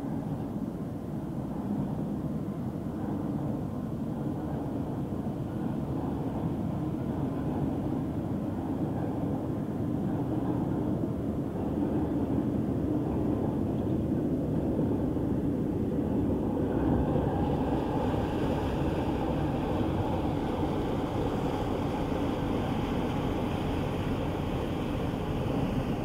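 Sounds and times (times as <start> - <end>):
ship diesel engine running: 15.7 - 26.0.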